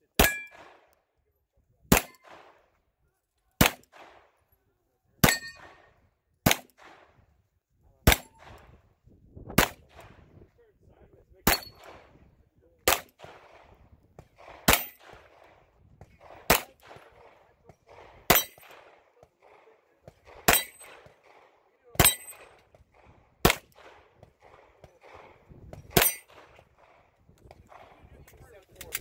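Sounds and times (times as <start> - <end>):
handgun shots: 6.4 - 7.2, 8.1 - 8.7, 9.6 - 10.1, 12.9 - 15.6, 16.2 - 27.0.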